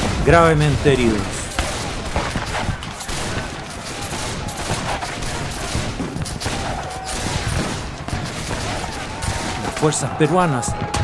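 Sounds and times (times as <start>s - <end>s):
rifle gunfire: 0.0s - 10.0s.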